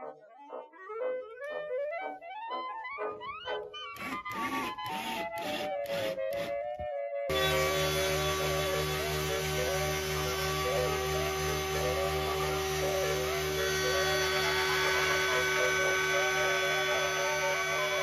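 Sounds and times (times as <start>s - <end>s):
router spindle humming and whining: 4.0s - 18.0s.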